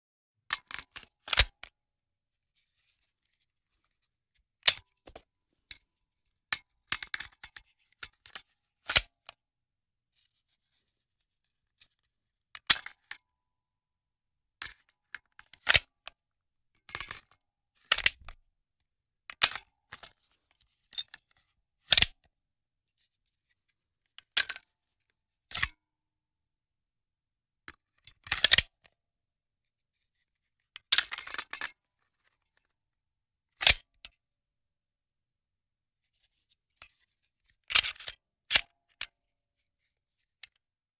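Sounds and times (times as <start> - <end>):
magazine metallic clicks and rattles: 37.7 - 38.7.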